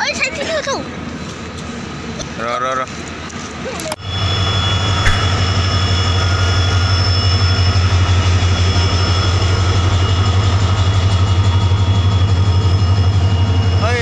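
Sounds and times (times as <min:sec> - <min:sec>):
diesel locomotive engine drone: 0:03.0 - 0:14.0
high whine: 0:04.1 - 0:08.5.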